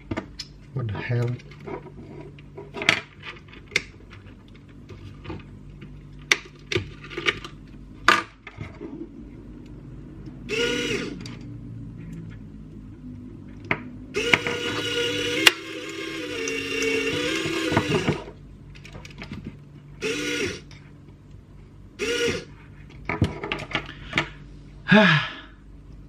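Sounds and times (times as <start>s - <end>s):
small winch motor whirring: 10.5s - 11.3s, 14.1s - 18.4s, 20.0s - 20.7s, 22.0s - 22.5s.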